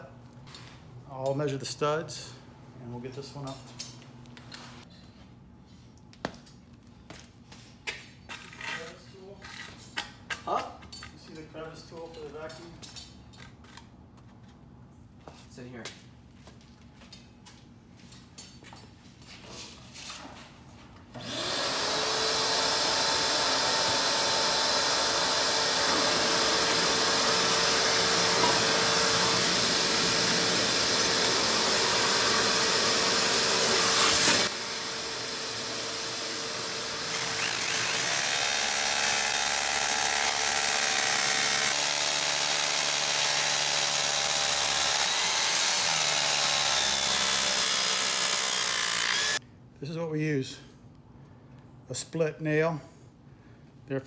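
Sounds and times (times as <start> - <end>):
shop vacuum running: 21.1 - 49.4
rotary hammer drill boring: 21.2 - 49.4.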